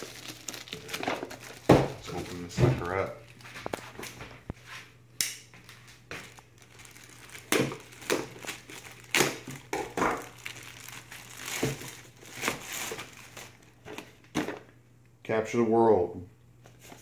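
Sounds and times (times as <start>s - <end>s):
plastic bag crinkling: 0.0s - 4.2s, 5.7s - 14.2s.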